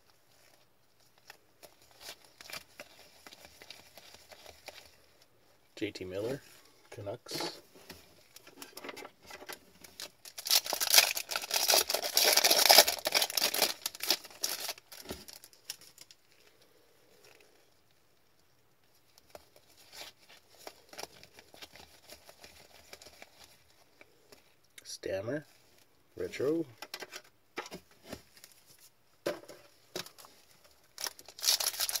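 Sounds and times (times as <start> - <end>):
wrapper crinkling: 0.3 - 5.3, 8.1 - 16.5, 19.0 - 24.6, 29.8 - 32.0.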